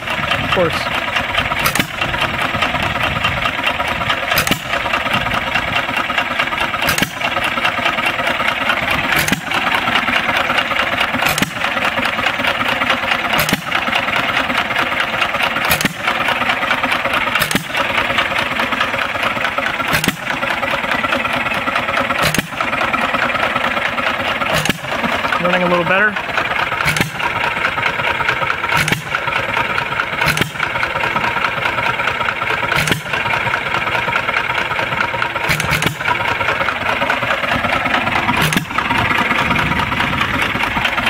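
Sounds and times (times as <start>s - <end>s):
engine firing bangs: 0.0s - 12.5s, 15.3s - 16.3s, 17.3s - 20.6s, 22.1s - 22.8s, 24.3s - 27.4s, 28.3s - 29.5s, 30.1s - 31.0s, 32.6s - 33.6s, 34.9s - 41.0s
mechanical engine running noise: 0.0s - 41.0s.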